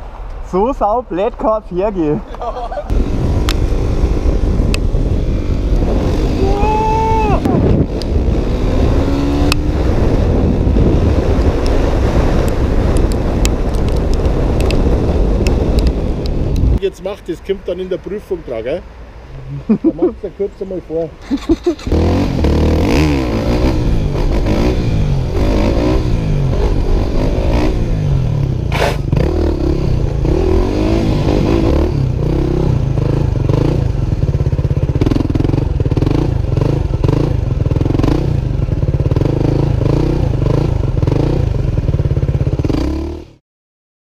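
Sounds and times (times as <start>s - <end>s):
dirt bike engine running: 28.7s - 43.2s.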